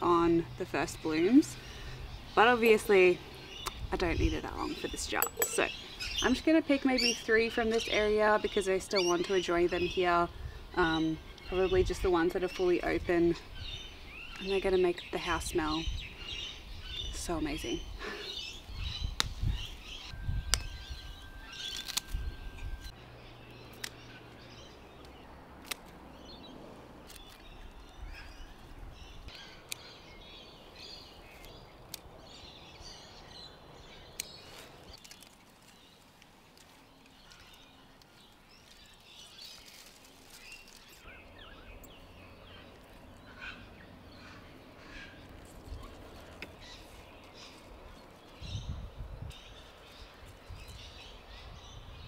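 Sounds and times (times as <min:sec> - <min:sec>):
small birds chirping: 0:00.0 - 0:52.0.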